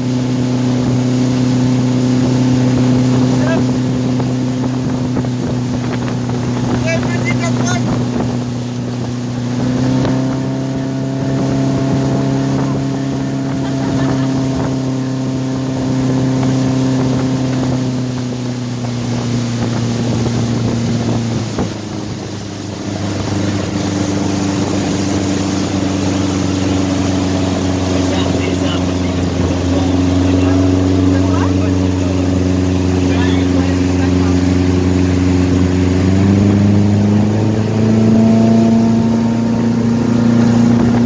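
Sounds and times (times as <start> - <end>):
motorboat engine running: 0.0 - 41.0
rush of boat wake: 0.0 - 41.0
wind on microphone: 0.0 - 41.0.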